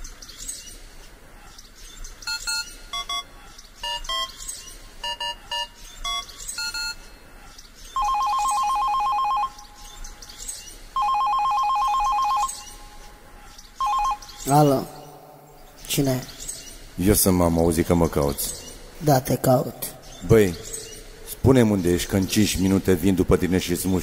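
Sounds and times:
phone line ringing: 2.3s - 4.4s, 5.0s - 7.1s, 8.0s - 9.9s, 11.0s - 13.2s, 13.8s - 14.8s
touch-tone phone dialing beeps: 2.3s - 4.4s, 5.0s - 7.0s, 8.0s - 9.7s, 11.0s - 12.8s, 13.8s - 14.4s.

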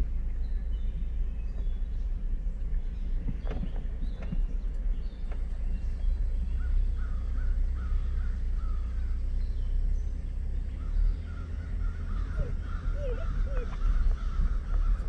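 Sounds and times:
pickup truck rumbling: 0.0s - 15.0s
short high animal calls: 12.0s - 14.7s.

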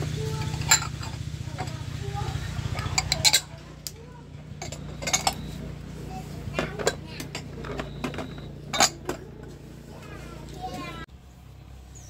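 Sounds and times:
dishes and cutlery clinking: 0.4s - 1.9s, 2.7s - 3.7s, 4.6s - 5.6s, 6.6s - 9.3s.

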